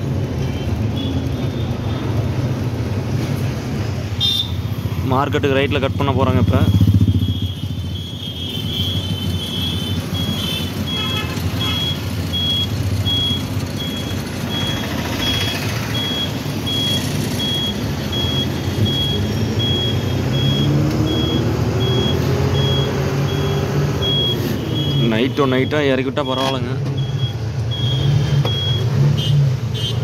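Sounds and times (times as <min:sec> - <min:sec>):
turn signal buzzer beeping: 0:05.9 - 0:29.9
lorry diesel engine running: 0:06.4 - 0:25.0.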